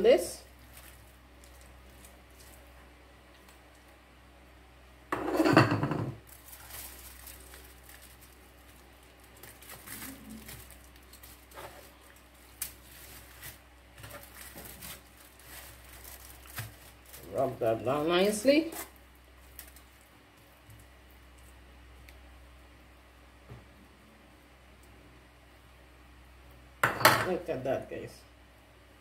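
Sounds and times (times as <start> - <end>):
foil and parchment rustling: 0.0 - 2.8, 6.2 - 21.6.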